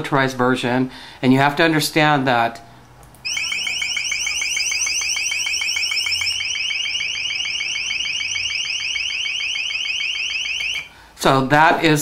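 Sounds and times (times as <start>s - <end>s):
high-pitched alarm chirps: 3.2s - 10.9s.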